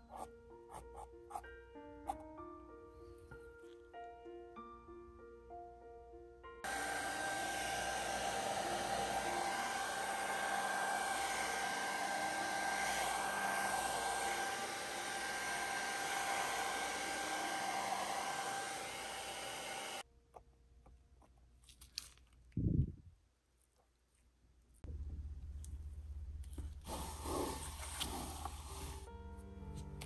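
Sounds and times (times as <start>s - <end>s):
hot-air blower whining: 6.6s - 20.0s.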